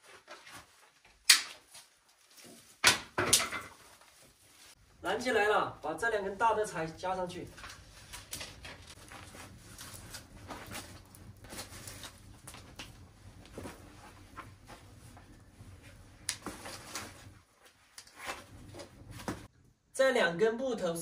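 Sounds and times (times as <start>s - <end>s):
wood fire crackling and popping: 1.0s - 1.9s, 6.6s - 19.5s.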